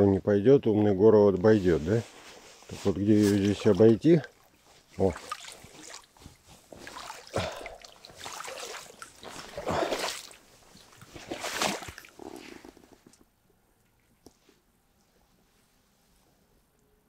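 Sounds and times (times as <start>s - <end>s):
wading steps splashing in water: 2.6s - 12.2s.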